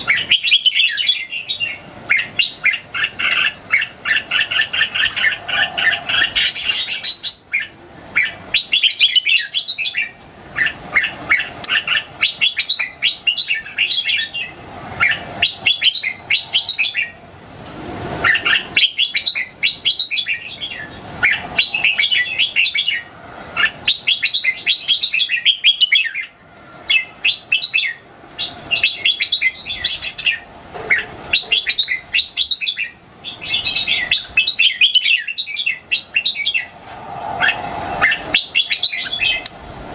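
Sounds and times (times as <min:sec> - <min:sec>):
bird chirping: 0:00.0 - 0:17.2, 0:18.2 - 0:39.5.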